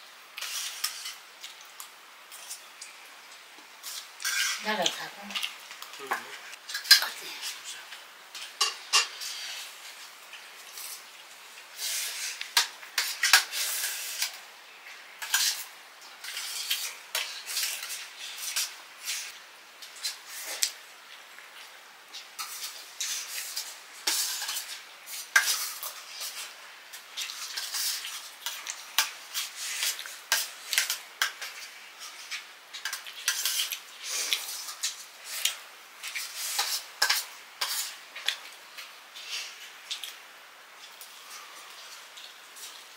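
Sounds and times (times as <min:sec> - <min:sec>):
plates and utensils clinking: 0:08.4 - 0:09.3.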